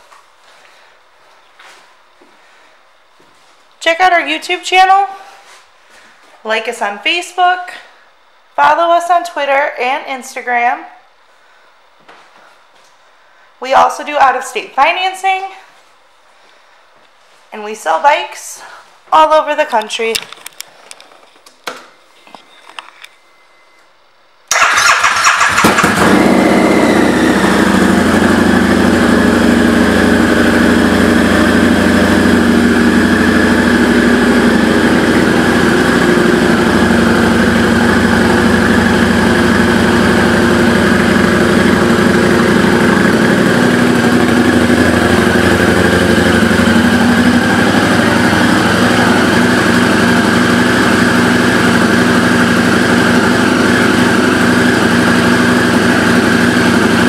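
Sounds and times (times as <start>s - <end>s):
motorcycle engine idling: 24.5s - 57.0s.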